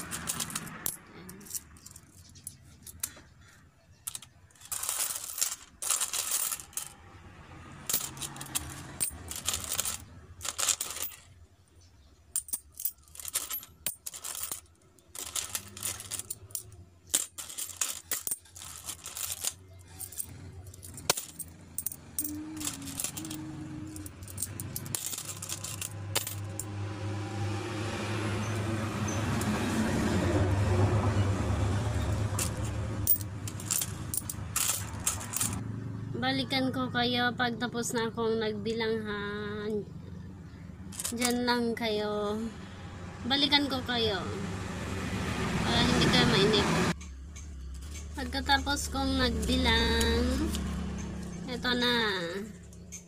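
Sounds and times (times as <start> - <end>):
coins clinking: 0.0 - 7.1, 7.8 - 11.4, 12.3 - 26.7, 31.8 - 35.6, 40.9 - 41.6.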